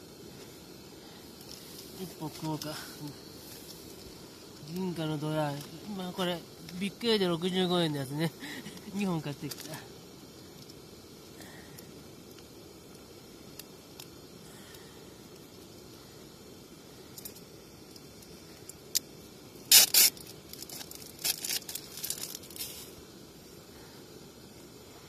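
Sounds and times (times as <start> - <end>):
plastic wrapper tearing: 19.7 - 22.6
plastic wrapper crinkling: 19.7 - 22.7.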